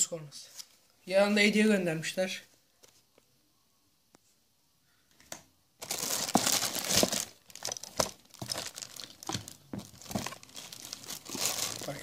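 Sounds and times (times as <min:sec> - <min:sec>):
plastic wrapping crinkling: 0:05.8 - 0:12.0.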